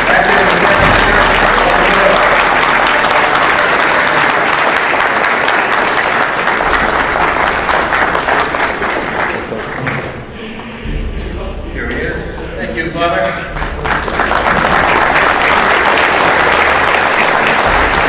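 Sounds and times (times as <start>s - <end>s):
audience applauding: 0.0s - 10.8s, 13.4s - 18.0s.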